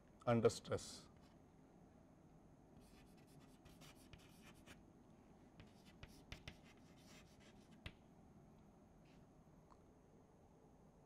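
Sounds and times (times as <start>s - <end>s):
chalk scratching on chalkboard: 2.8s - 4.8s, 5.6s - 8.0s
chalk tapping: 2.8s - 4.8s, 5.6s - 8.0s.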